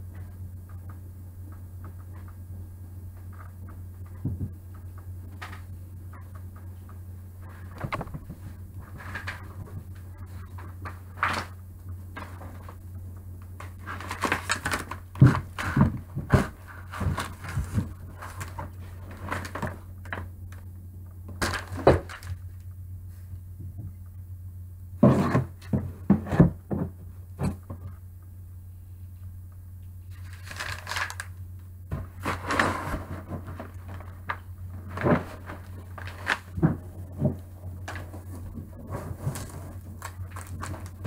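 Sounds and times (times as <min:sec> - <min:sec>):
steady low hum: 0:00.0 - 0:41.0
paper rustling: 0:07.4 - 0:11.6, 0:13.6 - 0:20.2, 0:21.4 - 0:22.5, 0:30.1 - 0:41.0.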